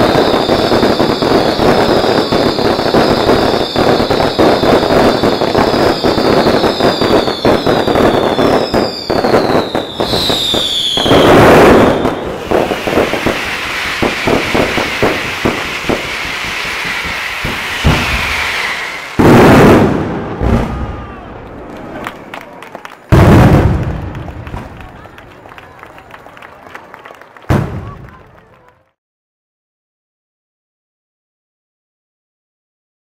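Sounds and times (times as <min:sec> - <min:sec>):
fireworks falling whistles: 0:00.0 - 0:21.2
fireworks bursts and bangs: 0:00.0 - 0:29.0.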